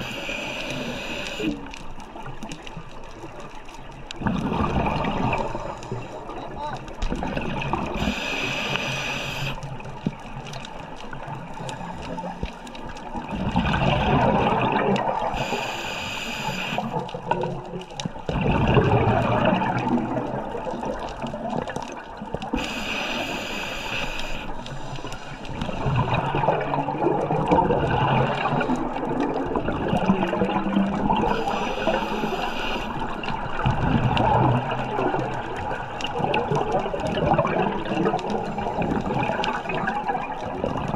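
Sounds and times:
hissing regulator inhale: 0.0s - 1.7s, 8.0s - 9.7s, 15.3s - 17.0s, 22.5s - 25.8s, 31.3s - 33.2s
gurgling exhaled bubbles: 0.0s - 40.9s.

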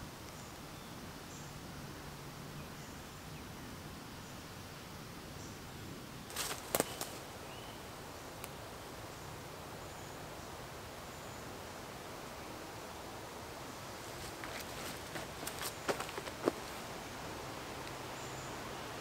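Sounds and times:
quiet forest background: 0.0s - 19.0s
tarp clicks and rustles: 6.3s - 7.2s, 14.1s - 16.8s.

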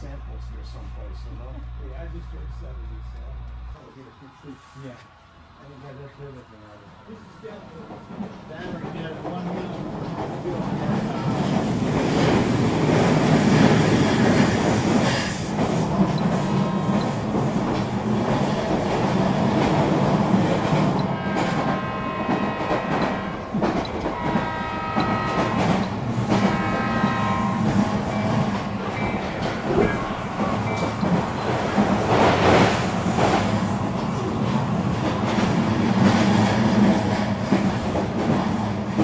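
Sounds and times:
model train wheels rumbling on track: 5.6s - 39.0s
locomotive horn: 16.4s - 17.3s, 21.0s - 30.7s.

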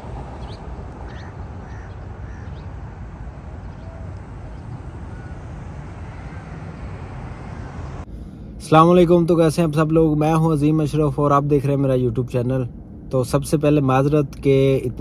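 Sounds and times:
low outdoor rumble: 0.0s - 15.0s
short bird calls: 0.4s - 2.8s, 3.6s - 6.6s.

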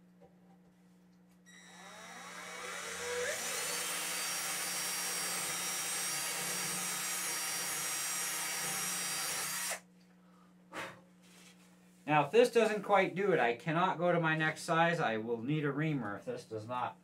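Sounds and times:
power drill boring into wood: 1.5s - 9.8s.

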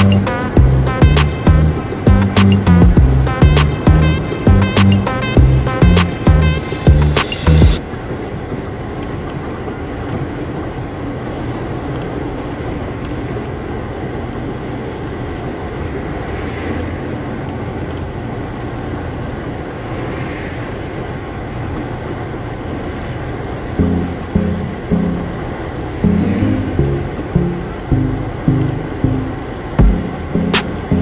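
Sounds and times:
truck engine rumble: 0.0s - 16.3s, 21.0s - 31.0s
road noise: 0.0s - 31.0s.

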